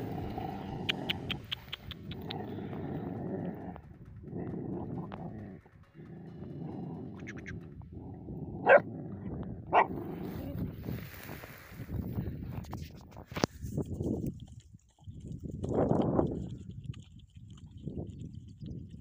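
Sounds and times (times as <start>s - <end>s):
puppies growling: 0.0s - 11.3s
sharp puppy barks: 8.6s - 8.8s, 9.7s - 10.0s.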